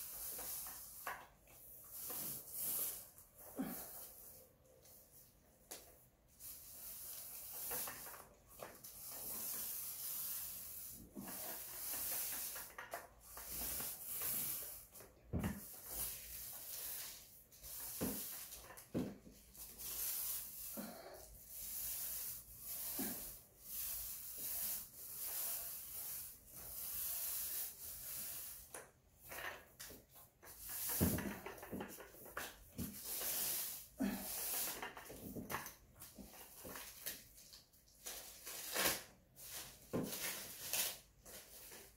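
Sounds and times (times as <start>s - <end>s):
paint roller hissing: 0.0s - 41.9s.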